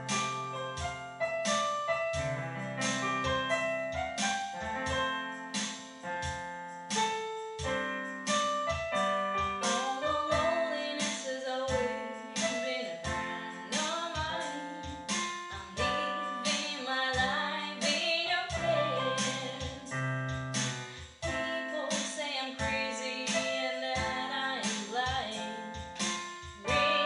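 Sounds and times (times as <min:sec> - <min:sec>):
digital piano chords: 0:00.0 - 0:27.0
woman singing pop song: 0:09.6 - 0:20.0, 0:20.9 - 0:27.0.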